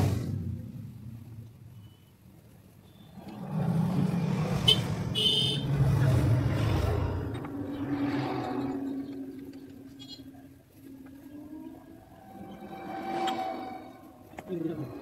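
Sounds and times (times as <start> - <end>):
vehicle engine rumble passing: 2.6 - 15.0
short high-pitched squeal: 12.1 - 14.4.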